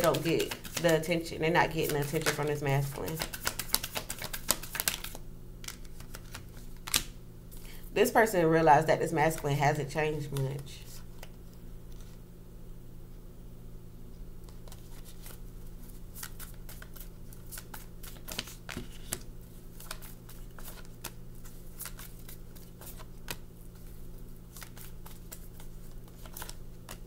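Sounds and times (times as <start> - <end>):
cards being shuffled: 0.0 - 7.2, 10.2 - 12.2, 14.5 - 27.0
steady low hum: 0.0 - 27.0.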